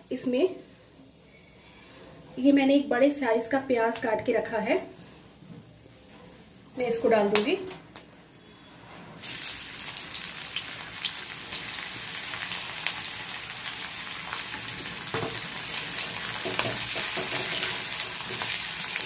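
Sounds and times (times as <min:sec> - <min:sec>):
onion sizzling in hot oil: 0:09.2 - 0:19.0.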